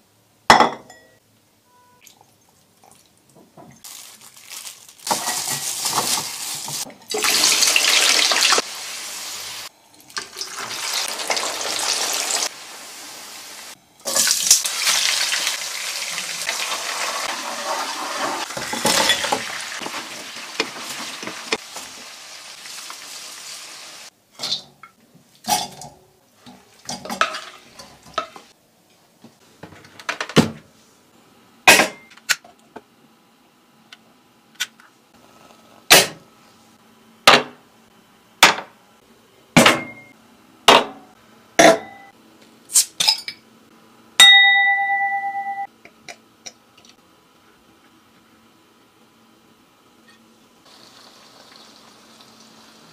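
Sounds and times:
tableware clinks and knocks: 0.5s - 1.2s, 41.6s - 42.1s
ribs sizzling in a frying pan: 5.2s - 9.7s, 10.4s - 24.1s, 50.7s - 52.9s
ringing clink: 44.2s - 45.7s.

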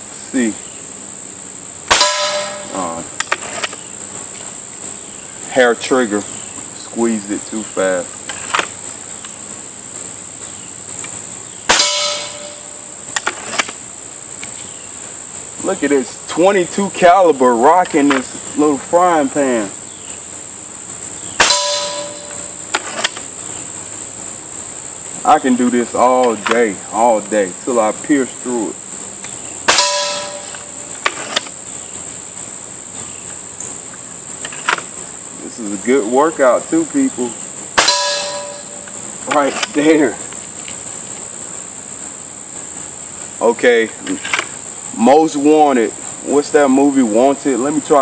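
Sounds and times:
high insect drone: 0.0s - 48.0s
pellet ringing on frying pan: 1.9s - 2.8s, 11.7s - 12.9s, 21.4s - 23.0s, 29.6s - 31.2s, 37.8s - 39.0s
air rifle shot: 1.9s - 2.9s, 11.7s - 12.6s, 21.4s - 23.1s, 29.7s - 31.4s.

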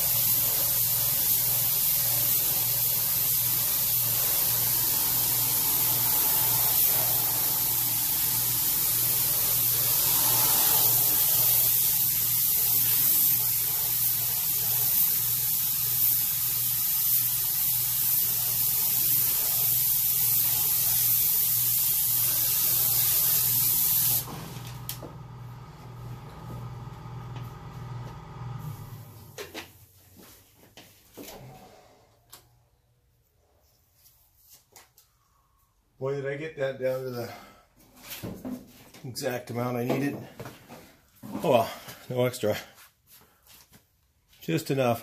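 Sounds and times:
spray gun hissing: 0.0s - 29.3s.

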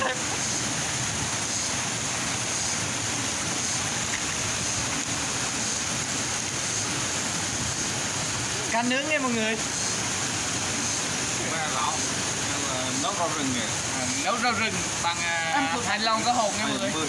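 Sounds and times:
water rushing in rocky stream: 0.0s - 17.0s.

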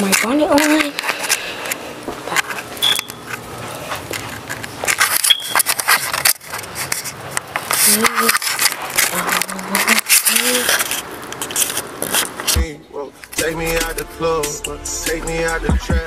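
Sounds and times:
person speaking: 0.0s - 1.6s, 7.7s - 11.0s
camera handling rustling: 2.4s - 12.6s.

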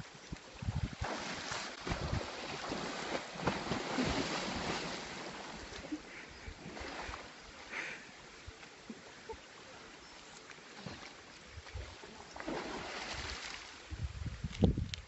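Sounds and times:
wind buffeting microphone: 0.5s - 1.1s, 1.8s - 2.6s, 13.8s - 15.0s
elephant splashing in water: 0.9s - 7.4s, 10.6s - 13.8s.

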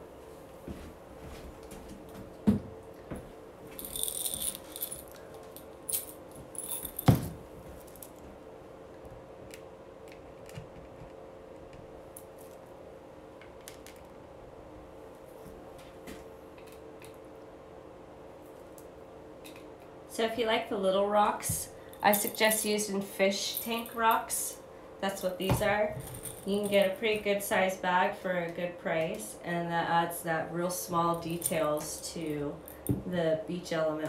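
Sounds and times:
rocks rattling in a glass jar: 3.8s - 5.2s.

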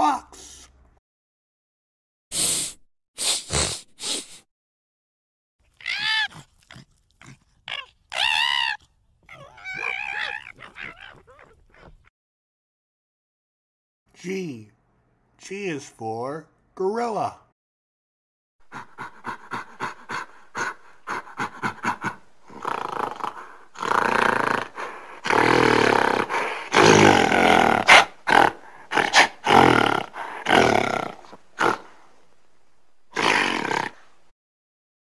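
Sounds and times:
gorilla roars: 5.8s - 12.1s, 18.7s - 32.0s, 33.1s - 34.2s.

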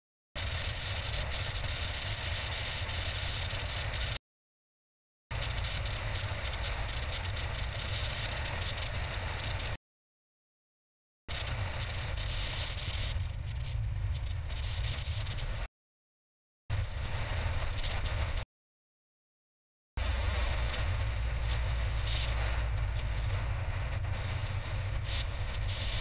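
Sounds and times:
car road and wind noise: 0.4s - 4.2s, 5.3s - 9.8s, 11.3s - 15.7s, 16.7s - 18.4s, 20.0s - 26.0s.

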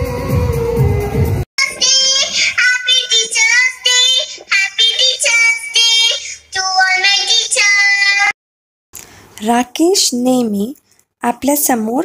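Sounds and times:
child singing: 1.6s - 8.4s.

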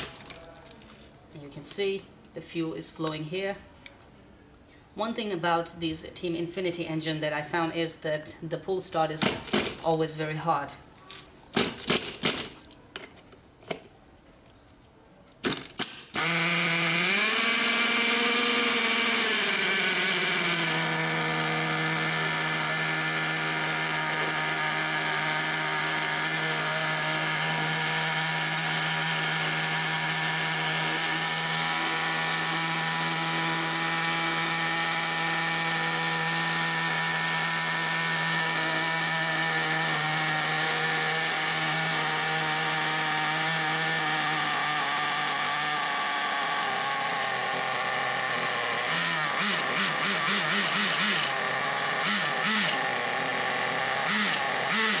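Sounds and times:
nitro engine revving and idling: 16.2s - 55.0s.

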